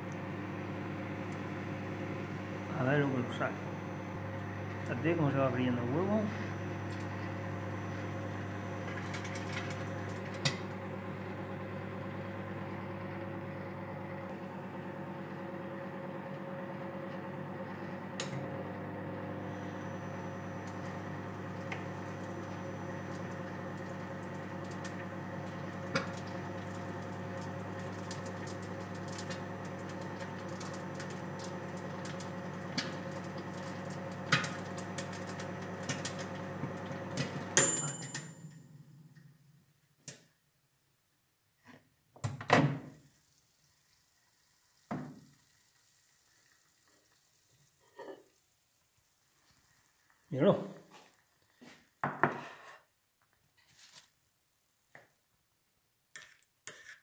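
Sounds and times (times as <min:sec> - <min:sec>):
microwave oven humming: 0:00.0 - 0:40.3
egg popping in oil: 0:43.0 - 0:52.3.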